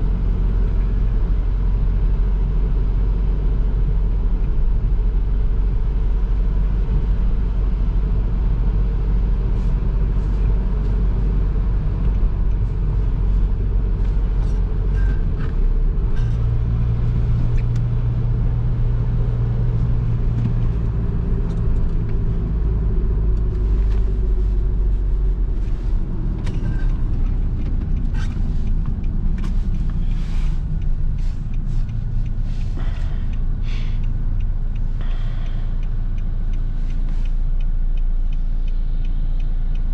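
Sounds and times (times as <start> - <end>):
diesel engine driving: 0.0 - 39.9
road noise: 0.0 - 39.9.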